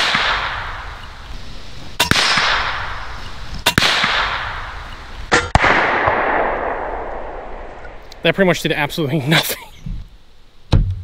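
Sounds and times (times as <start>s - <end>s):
air rifle shots with hissing echo: 0.0s - 8.0s.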